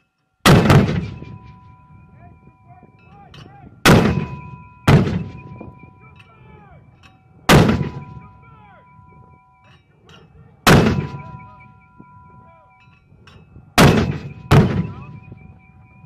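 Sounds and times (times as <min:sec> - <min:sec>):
mortar firing with echo: 0:00.4 - 0:01.4, 0:03.8 - 0:05.6, 0:07.5 - 0:08.2, 0:10.6 - 0:11.5, 0:13.8 - 0:15.2.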